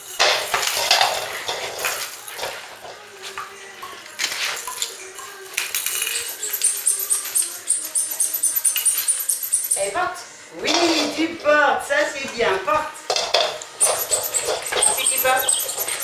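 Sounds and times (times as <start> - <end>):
plastic toys clattering on tiles: 0.0 - 10.0, 10.7 - 11.2, 13.1 - 16.0
claws on tiles: 4.2 - 10.0, 13.1 - 16.0
very high squeaks: 4.6 - 10.2, 13.8 - 16.0.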